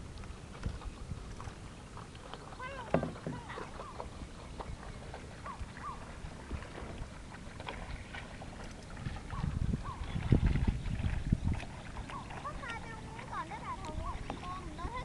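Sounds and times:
water lapping against a kayak: 0.0s - 15.0s.

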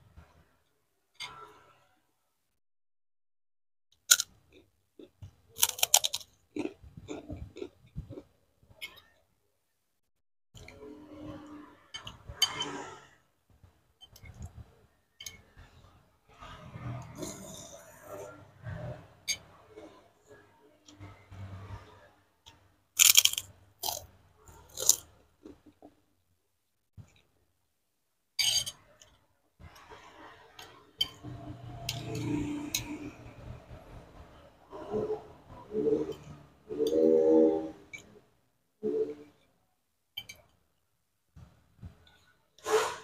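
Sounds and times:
chewing and eating noises: 4.2s - 9.2s, 15.3s - 21.9s, 22.5s - 25.9s
chewing: 4.5s - 8.3s
metal spoon scraping ceramic plate: 10.8s - 13.1s.

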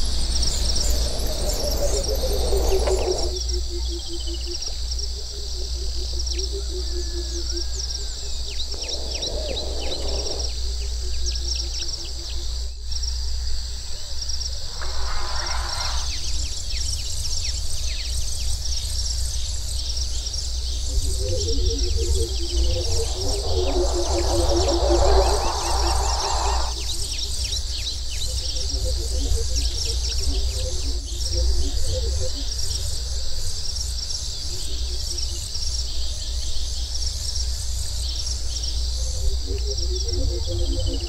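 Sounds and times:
birds chirping: 0.3s - 12.7s, 14.3s - 18.8s, 19.4s - 32.8s
low rumble: 14.4s - 17.1s, 20.7s - 27.0s
short rushes of noise: 14.5s - 16.7s, 23.1s - 26.8s
low rapidly pulsing call: 14.5s - 16.8s, 20.8s - 27.2s.

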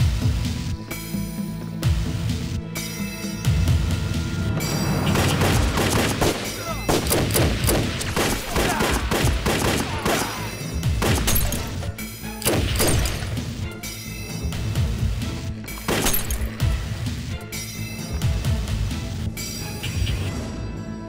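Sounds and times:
dramatic soundtrack music: 0.0s - 21.0s
rapid gunfire: 5.0s - 13.6s, 15.8s - 16.8s.

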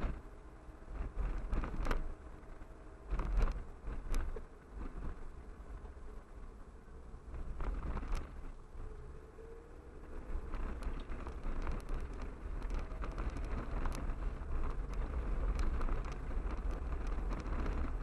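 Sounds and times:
road and wind noise in car: 0.0s - 18.0s
car rattles and clicks: 0.9s - 5.9s, 7.2s - 8.6s, 10.2s - 18.0s.

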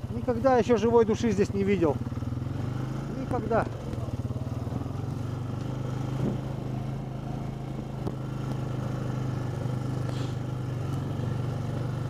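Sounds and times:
off-road vehicle engine running: 0.0s - 12.0s
brief hiss: 10.0s - 10.4s.

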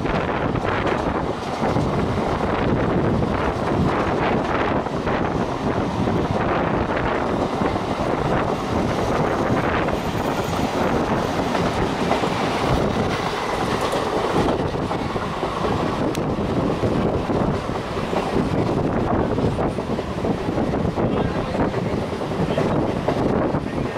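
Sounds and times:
train wheels clickety-clack: 0.0s - 23.9s.

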